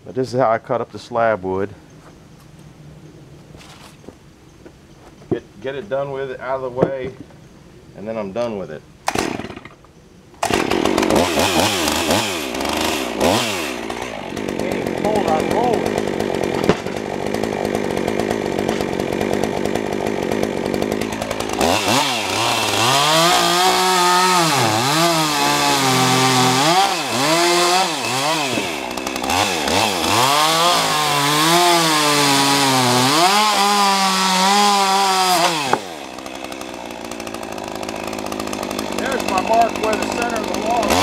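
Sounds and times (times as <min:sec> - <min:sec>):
chainsaw idling and cutting: 0:09.0 - 0:41.0.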